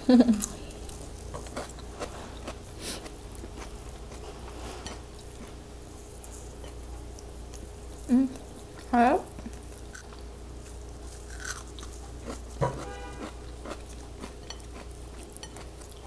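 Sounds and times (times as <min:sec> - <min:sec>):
low steady hum: 0:00.0 - 0:16.0
wet chewing of raw tomato: 0:00.3 - 0:05.6, 0:11.1 - 0:16.0.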